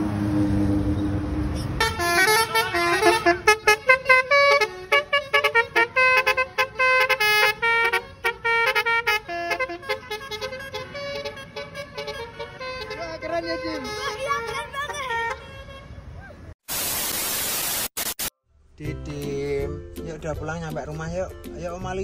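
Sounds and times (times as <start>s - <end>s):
held horn note: 1.8s - 15.8s
multi-tone horn melody: 1.8s - 15.9s.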